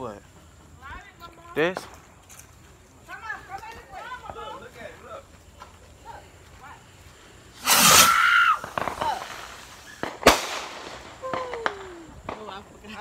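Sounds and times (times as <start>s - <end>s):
firework shell bang: 7.6s - 9.2s
firework hissing launch with whistle: 7.6s - 12.5s.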